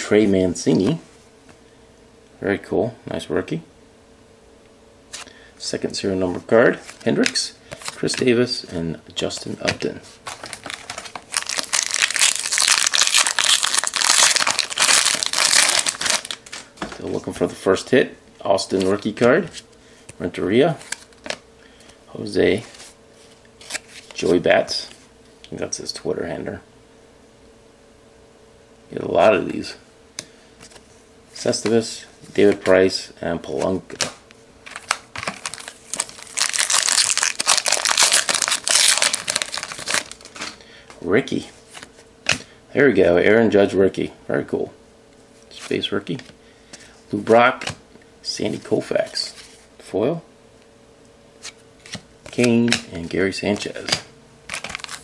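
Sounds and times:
wrapper tearing and crinkling: 10.3s - 16.6s, 34.7s - 40.5s, 54.5s - 55.0s.

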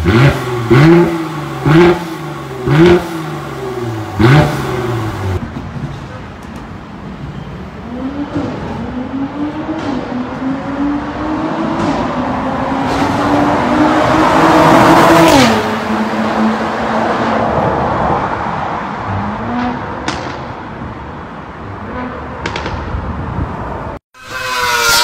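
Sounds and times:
car engine accelerating: 0.0s - 5.4s, 7.8s - 17.9s.

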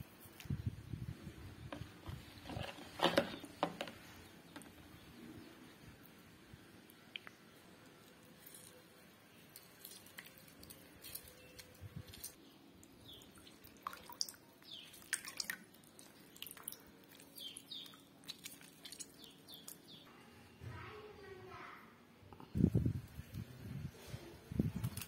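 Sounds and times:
juice dripping into bowl: 9.5s - 20.0s.

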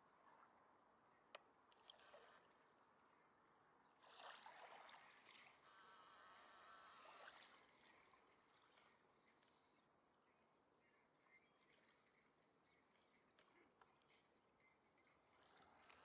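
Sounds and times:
zoom motor whir: 2.0s - 2.5s, 5.6s - 7.6s.

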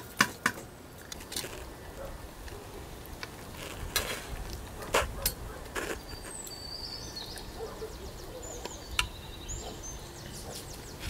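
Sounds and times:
small birds chirping: 5.3s - 11.0s.

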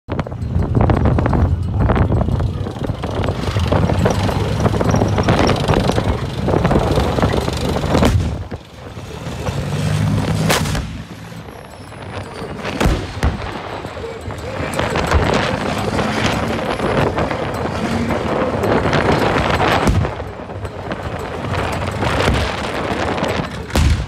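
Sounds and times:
tank diesel engine rumble: 0.1s - 24.0s
sharp cracks: 9.9s - 11.2s.

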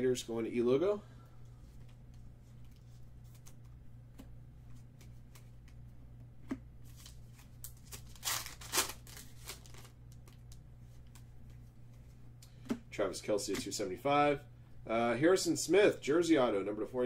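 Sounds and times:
foil card pack crinkling and tearing: 6.9s - 11.2s.

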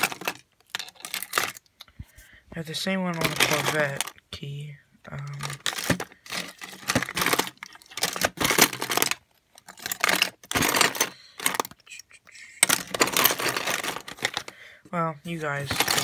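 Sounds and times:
keys jangling in a drawer: 5.6s - 11.8s, 12.6s - 14.5s.

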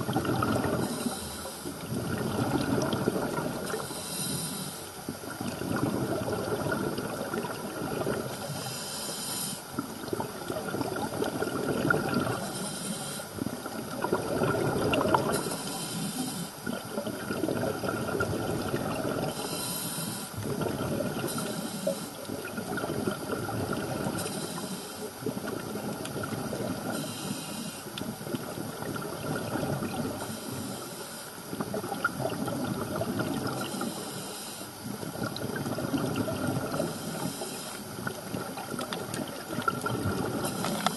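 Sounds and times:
gurgling exhaust bubbles: 0.0s - 1.0s, 1.7s - 3.8s, 5.1s - 8.5s, 9.8s - 12.5s, 13.4s - 15.6s, 16.6s - 19.4s, 20.4s - 21.5s, 22.1s - 24.2s, 25.2s - 27.0s, 28.0s - 30.3s, 31.4s - 33.9s, 34.8s - 37.0s, 37.9s - 40.9s
regulator inhalation hiss: 0.7s - 1.8s, 3.6s - 5.0s, 8.3s - 9.8s, 12.3s - 13.4s, 15.3s - 16.6s, 19.3s - 20.4s, 21.2s - 22.3s, 24.1s - 25.2s, 26.9s - 27.9s, 30.2s - 31.5s, 33.6s - 34.9s, 36.7s - 37.9s, 40.3s - 40.9s.

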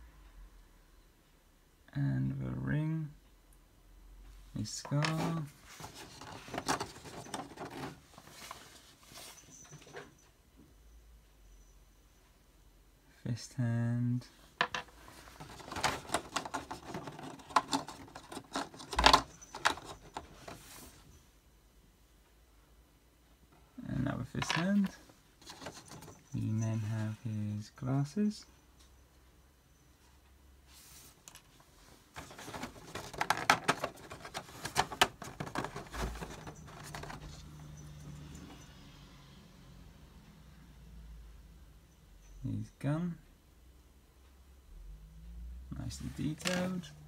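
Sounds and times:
plastic accessories clicking and rattling: 4.8s - 8.6s, 14.6s - 20.6s, 24.4s - 26.4s, 32.1s - 38.4s, 46.2s - 46.9s.

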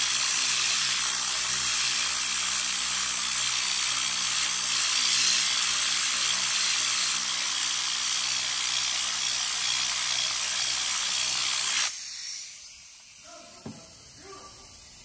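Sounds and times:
brush cleaning tool hissing: 4.7s - 7.4s, 11.2s - 15.0s.

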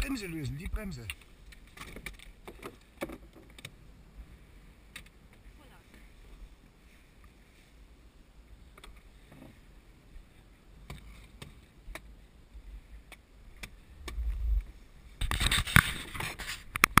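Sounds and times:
hand rubbing camera housing: 15.2s - 17.0s.

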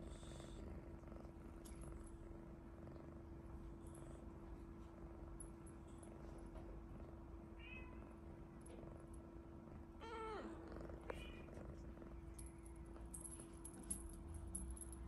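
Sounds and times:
kitten purring: 0.0s - 7.4s, 8.1s - 13.8s.

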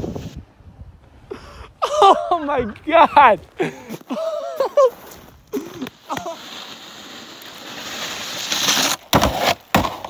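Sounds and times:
snowboard sliding over snow: 0.0s - 0.5s, 3.9s - 10.0s
person exclaiming: 1.8s - 4.9s.

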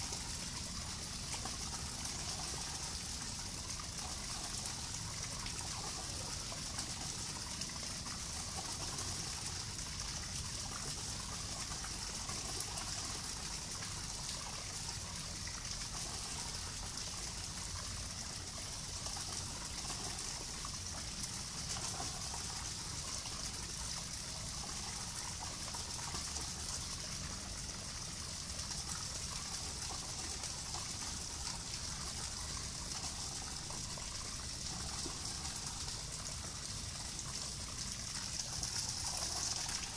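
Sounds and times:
outdoor hiss: 0.0s - 39.9s.

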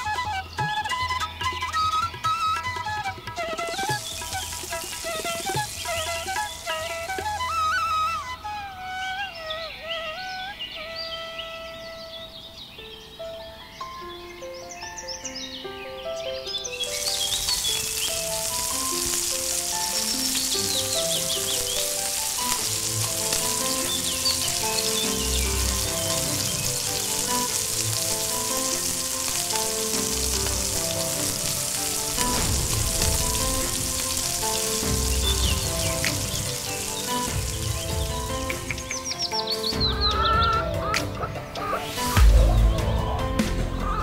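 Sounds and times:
background music: 0.0s - 44.0s
food sizzling in pot: 3.6s - 7.8s, 16.7s - 44.0s.

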